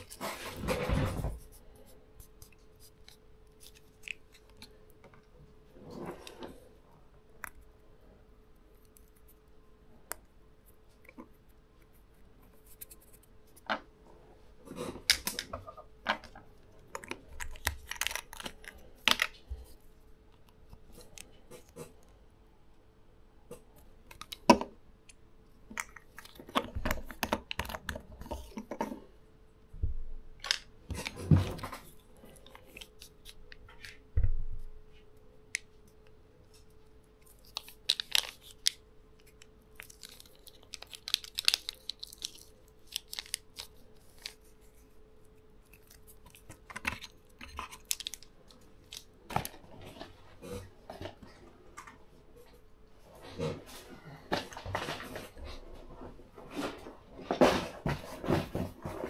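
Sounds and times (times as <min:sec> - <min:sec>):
plastic tube crinkling and squeezed: 0:00.0 - 0:06.7, 0:14.6 - 0:22.1, 0:25.6 - 0:29.1, 0:30.4 - 0:34.1, 0:34.9 - 0:52.6
faint steady hum: 0:00.0 - 0:59.0.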